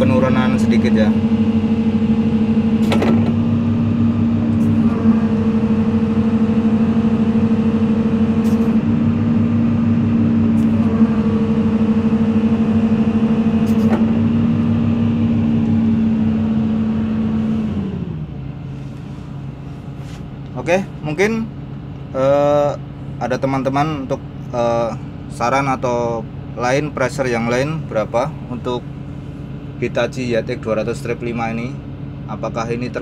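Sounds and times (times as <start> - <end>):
excavator diesel engine running: 0.0 - 33.0
hydraulic pump whine: 0.0 - 33.0.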